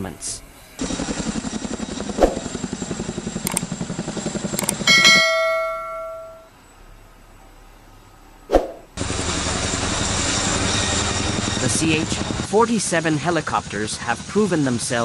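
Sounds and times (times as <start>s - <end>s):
helicopter rotors chopping: 0.9s - 6.0s
bell-like notification chime: 4.6s - 6.5s.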